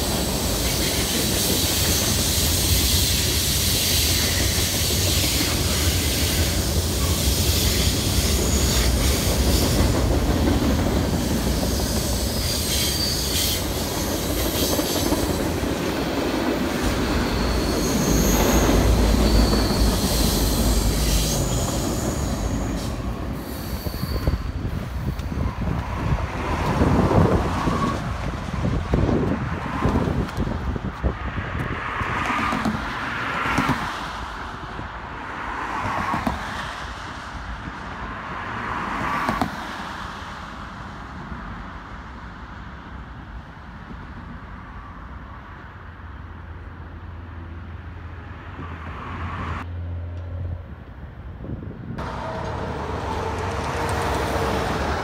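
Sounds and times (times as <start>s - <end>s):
train wheel squeals: 0.0s - 25.7s, 27.2s - 28.2s
freight train rumble: 0.0s - 55.0s
road traffic: 0.0s - 55.0s.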